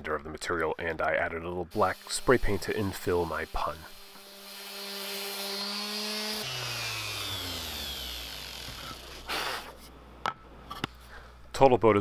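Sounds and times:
orbital sander running: 1.9 - 9.3
sander winding down whine: 3.4 - 9.3.

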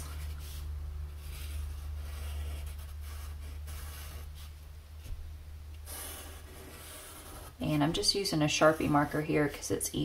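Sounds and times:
steady low hum: 0.0 - 10.0
marker scratching on paper: 1.2 - 4.5, 5.9 - 9.3.

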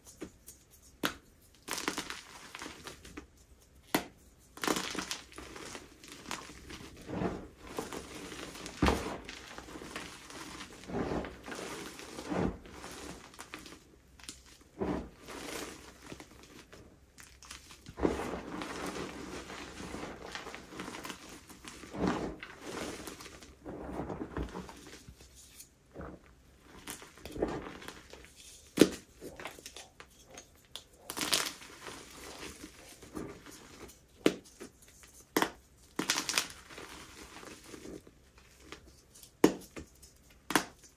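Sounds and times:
chalk crunching: 0.0 - 30.4.

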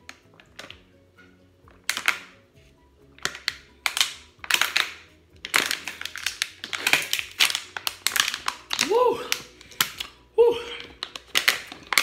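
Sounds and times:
plastic bottle crinkling: 0.0 - 0.8, 1.7 - 2.4, 3.2 - 12.0
soft background music: 0.0 - 12.0.

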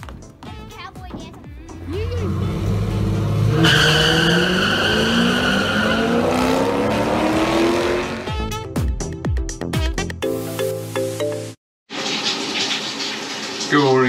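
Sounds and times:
racing car engines revving: 1.8 - 8.3
tyre squeal: 3.5 - 6.6.

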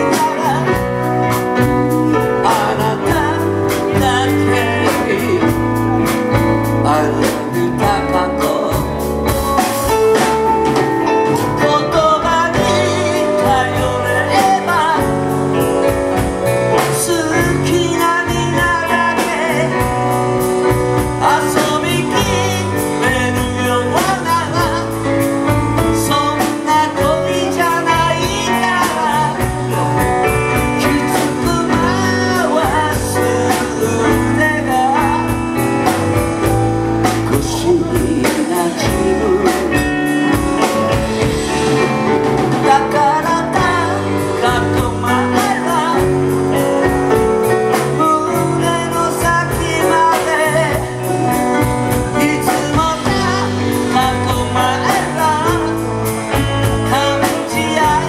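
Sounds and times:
drum kit beat: 0.0 - 58.0
electric bass: 0.0 - 58.0
electric guitars: 0.0 - 58.0
keyboard: 0.0 - 58.0
man singing into a microphone: 0.0 - 58.0.

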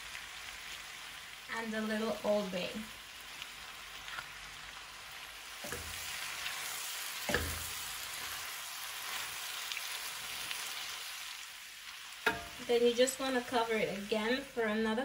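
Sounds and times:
vegetables sizzling in a skillet: 0.0 - 15.0
metal tongs tossing food: 5.6 - 10.6, 12.1 - 12.7.

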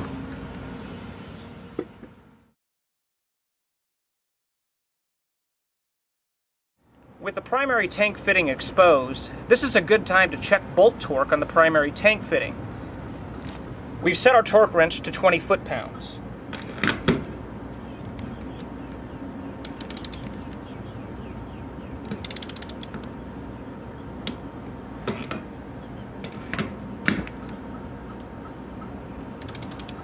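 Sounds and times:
torque wrench ratcheting: 19.6 - 20.3, 22.2 - 23.0, 29.4 - 30.0.

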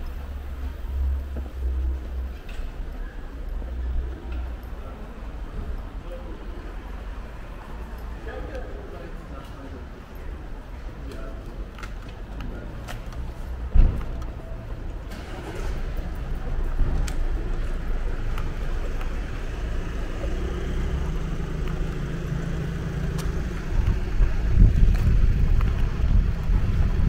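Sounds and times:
low rumble: 22.5 - 27.0.

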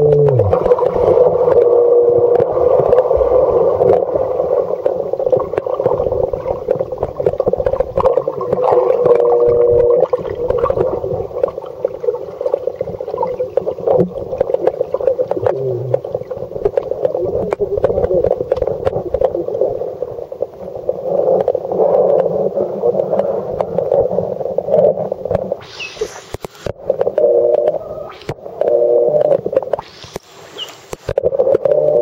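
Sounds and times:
muffled humming tone: 0.0 - 11.5, 27.0 - 30.2
underwater clicks: 0.0 - 19.7, 21.2 - 32.0
underwater churning: 0.0 - 32.0.

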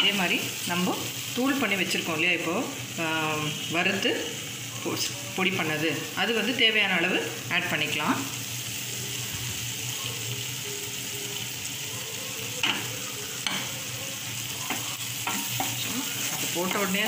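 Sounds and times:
masala sizzling in oil: 0.0 - 17.0
utensils knocking against pan: 12.6 - 13.8, 14.6 - 16.9.

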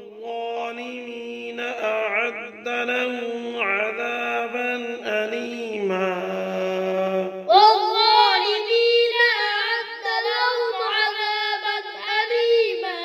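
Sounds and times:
man chanting recitation: 0.0 - 13.0
child singing: 7.5 - 13.0.

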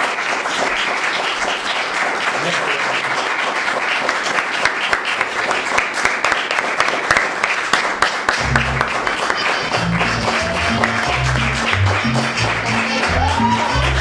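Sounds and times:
audience applauding: 0.0 - 14.0
music with deep bass line: 8.4 - 9.0, 9.6 - 14.0.

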